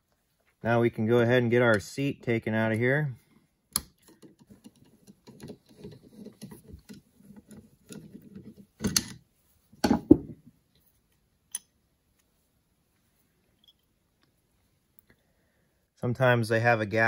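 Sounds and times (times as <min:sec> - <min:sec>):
screwdriver clicking and scraping metal: 0:03.7 - 0:09.2.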